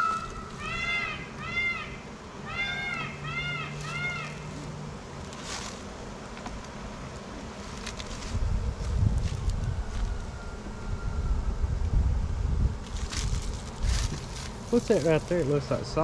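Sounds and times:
animal calls rising and falling: 0:00.0 - 0:04.8
honey bees buzzing: 0:00.0 - 0:16.0
wind buffeting microphone: 0:08.2 - 0:16.0.

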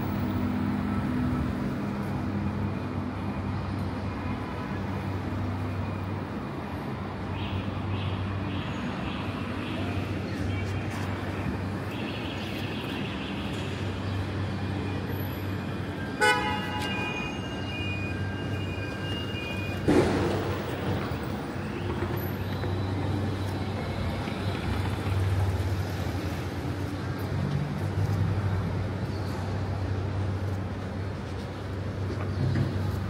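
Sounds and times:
street traffic engine hum: 0:00.0 - 0:33.0
vehicle horn tooting: 0:16.2 - 0:17.4.

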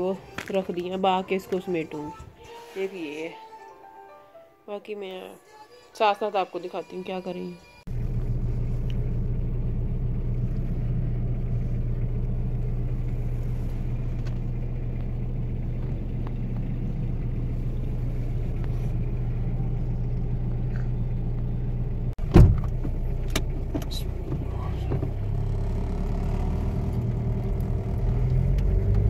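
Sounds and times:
car cabin road and engine drone: 0:07.8 - 0:29.0.

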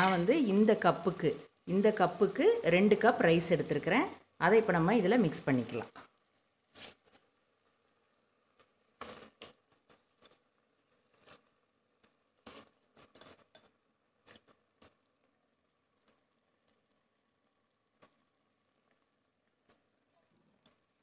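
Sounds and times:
rice rustling into pot: 0:05.8 - 0:16.9.

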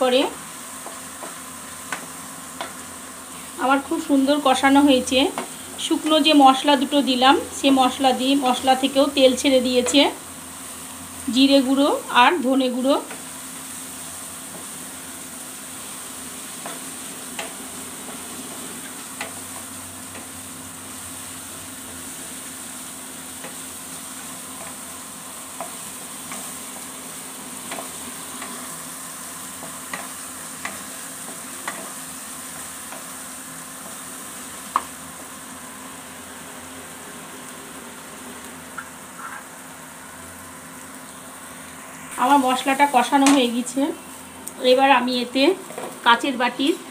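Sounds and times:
oil sizzling: 0:00.0 - 0:46.9
spatula tapping on pan: 0:16.6 - 0:18.2, 0:19.2 - 0:20.3, 0:29.6 - 0:32.0, 0:34.7 - 0:35.0.

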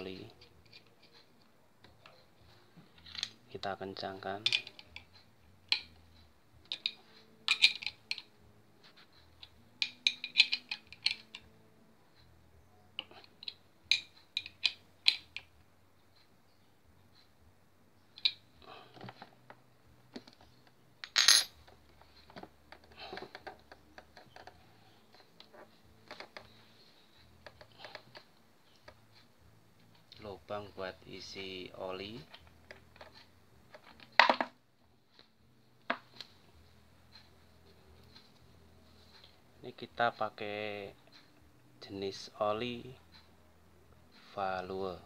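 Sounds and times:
metal spanner clinking on plug: 0:06.7 - 0:08.3, 0:09.8 - 0:11.4.

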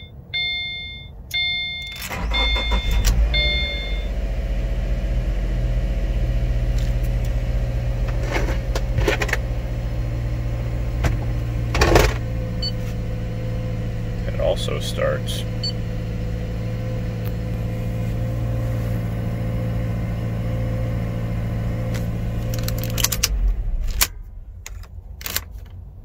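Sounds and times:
dashboard warning chime beeping: 0:00.0 - 0:04.2, 0:12.5 - 0:12.9, 0:15.0 - 0:17.0
car engine starting and idling: 0:00.0 - 0:26.0.

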